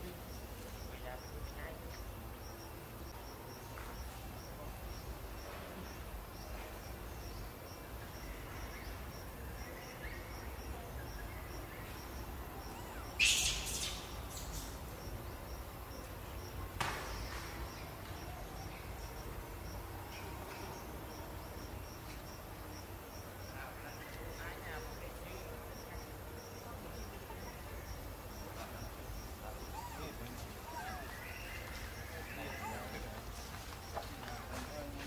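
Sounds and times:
insect chirping: 0.0 - 34.0
faint background hiss: 0.0 - 35.0
baby monkey crying: 12.6 - 14.2, 29.6 - 31.1.

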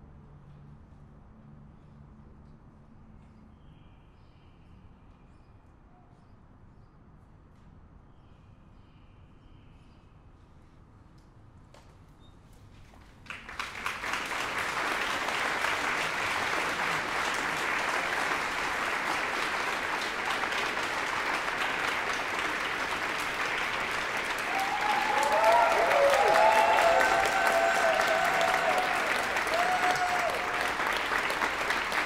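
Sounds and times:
audience applause: 13.2 - 32.0
people cheering: 13.4 - 32.0.

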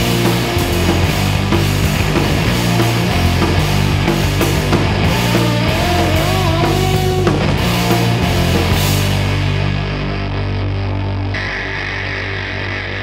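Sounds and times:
heavy rock band playing: 0.0 - 13.0
wavering lead guitar line: 0.0 - 13.0.

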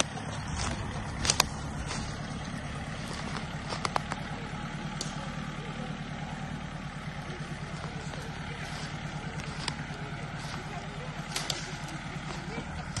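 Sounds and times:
tractor engine running: 0.0 - 13.0
sharp clicks: 3.2 - 4.3.

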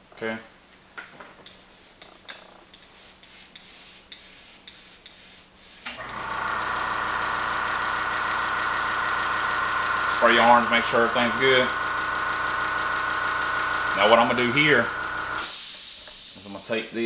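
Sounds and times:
airbrush puffs of hissing air: 1.4 - 6.0, 15.4 - 17.0
air compressor humming: 5.6 - 17.0.

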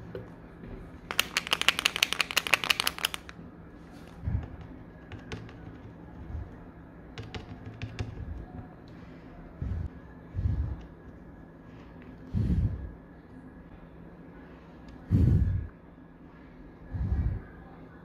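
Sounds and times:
rapid sharp clicks: 1.1 - 3.3.

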